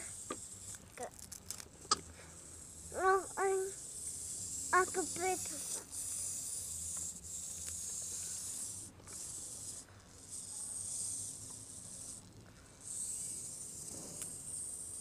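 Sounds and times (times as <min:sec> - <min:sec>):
small electric motor whirring: 0:00.0 - 0:15.0.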